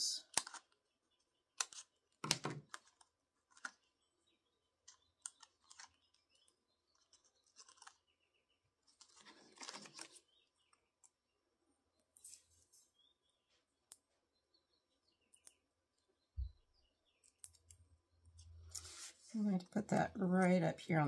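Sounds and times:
paper backing rustling: 0:07.0 - 0:08.1, 0:08.8 - 0:10.3.

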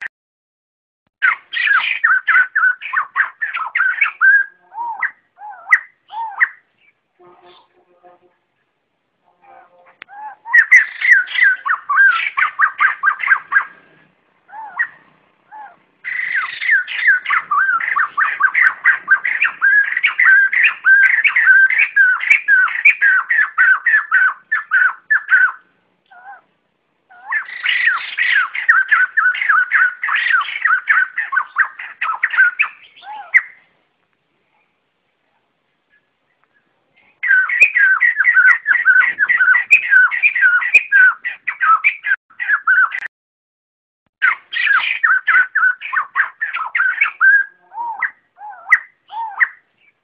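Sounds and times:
bird calling rapid repeated notes: 0:01.2 - 0:06.7, 0:10.1 - 0:13.8, 0:14.5 - 0:26.4, 0:27.1 - 0:33.6, 0:37.2 - 0:43.1, 0:44.2 - 0:49.7.

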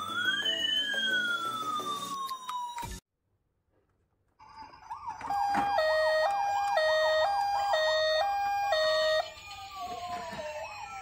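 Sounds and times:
toy ambulance siren: 0:00.0 - 0:03.0, 0:04.4 - 0:11.0
faint falling siren tone: 0:04.8 - 0:11.0.

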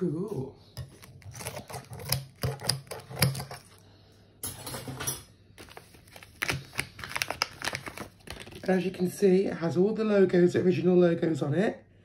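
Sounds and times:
plastic bag crinkling: 0:05.6 - 0:09.1.

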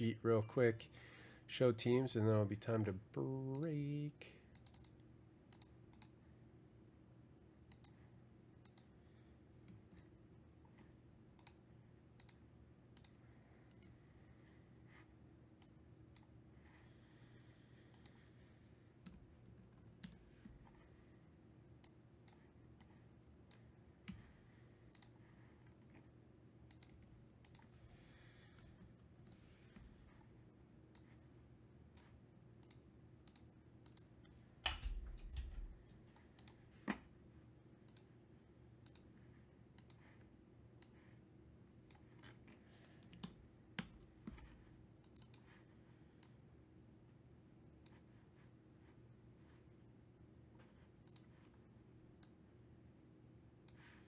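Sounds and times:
low steady hum: 0:00.0 - 0:54.0
keyboard typing clicks: 0:04.5 - 0:06.2, 0:07.7 - 0:08.0, 0:08.6 - 0:08.9, 0:11.4 - 0:14.0, 0:19.0 - 0:20.2, 0:21.8 - 0:29.4, 0:31.9 - 0:35.8, 0:38.8 - 0:39.1, 0:39.8 - 0:40.0, 0:43.0 - 0:45.5, 0:51.0 - 0:51.4.

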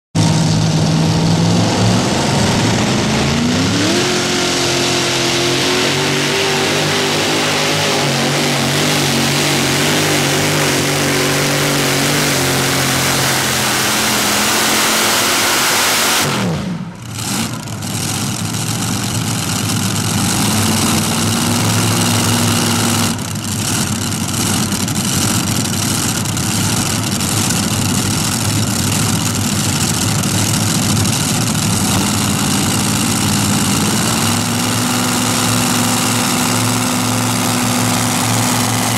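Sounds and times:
tractor engine running under load: 0:00.2 - 0:15.6, 0:16.8 - 0:38.9.

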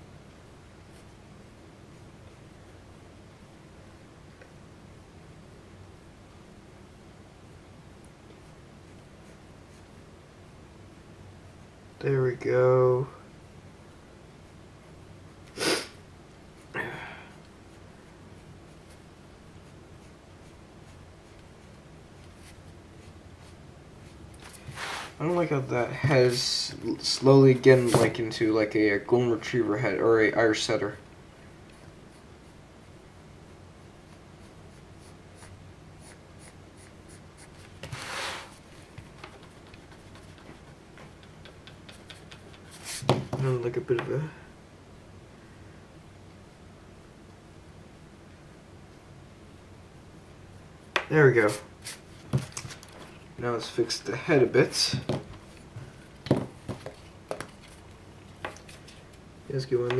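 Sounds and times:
pencil scratching on paper: 0:34.1 - 0:38.6, 0:39.3 - 0:43.1.

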